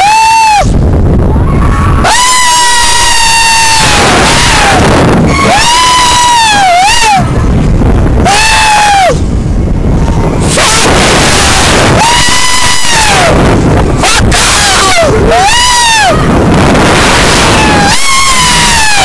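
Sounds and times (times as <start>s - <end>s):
wind rushing on microphone: 0.0s - 19.0s
riders screaming: 1.3s - 7.6s, 8.2s - 9.3s, 10.0s - 19.0s.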